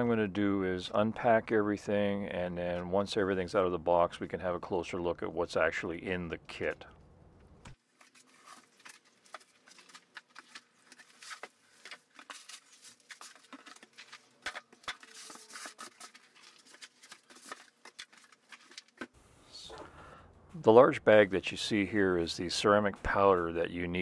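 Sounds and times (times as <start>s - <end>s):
packing material rustling: 7.8s - 19.2s.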